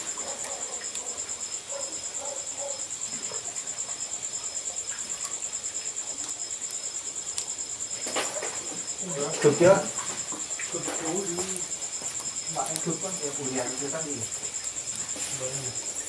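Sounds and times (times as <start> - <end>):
cricket chirping: 0.0 - 16.0.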